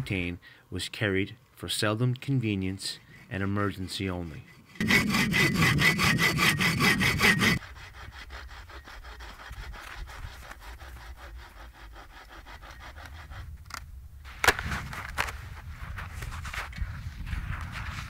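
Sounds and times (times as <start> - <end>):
bow saw cutting wood: 3.0 - 13.8.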